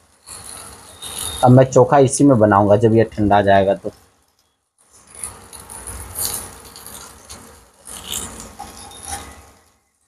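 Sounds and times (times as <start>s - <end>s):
potato slices sizzling in pan: 0.0s - 2.9s, 4.9s - 10.0s.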